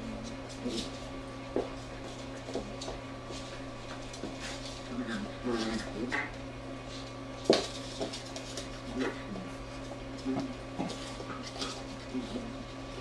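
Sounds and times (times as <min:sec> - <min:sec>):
paws and bodies bumping: 0:00.4 - 0:06.4, 0:07.4 - 0:12.6
dog claws clicking on wood floor: 0:07.4 - 0:09.0.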